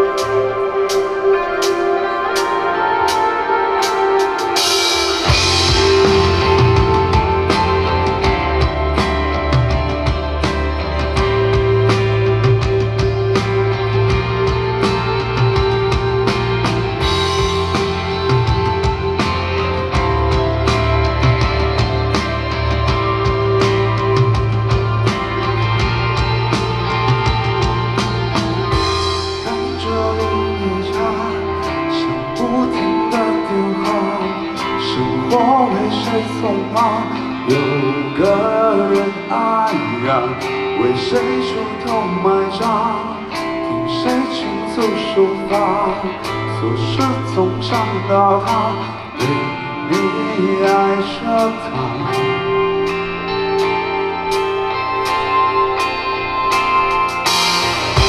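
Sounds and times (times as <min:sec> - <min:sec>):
person singing: 0:00.0 - 0:56.6
bass guitar: 0:00.0 - 0:58.0
electric guitars: 0:00.0 - 0:58.0
drum beat: 0:04.0 - 0:29.3.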